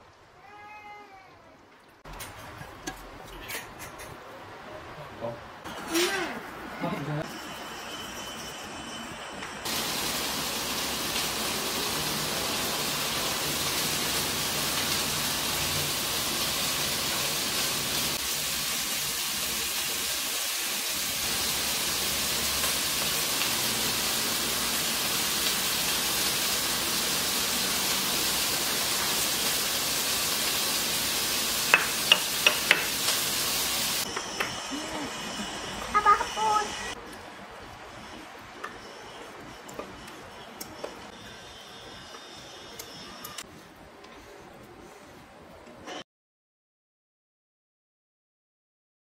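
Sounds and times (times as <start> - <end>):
steady hiss: 9.6 - 45.2.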